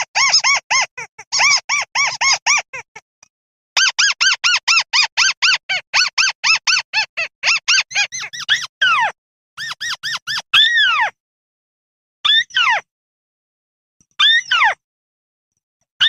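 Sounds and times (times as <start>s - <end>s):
rail calling squeaky notes: 0.1s - 2.8s, 3.8s - 10.7s.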